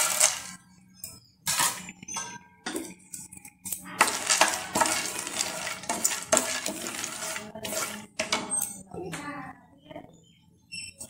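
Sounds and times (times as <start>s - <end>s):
peanuts stirred in a frying pan: 0.0s - 0.6s, 1.5s - 1.9s, 3.7s - 8.7s.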